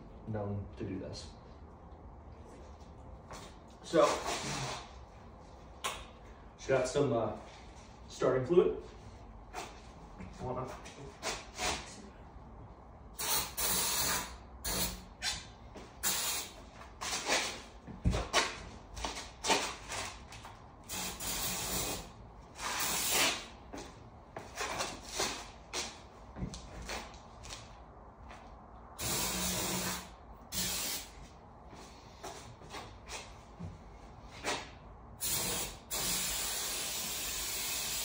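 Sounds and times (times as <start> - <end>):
aerosol can spraying: 29.0 - 31.1, 35.2 - 38.0.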